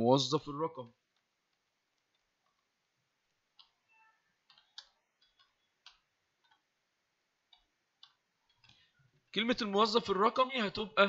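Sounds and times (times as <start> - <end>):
computer keyboard typing: 4.4 - 6.6.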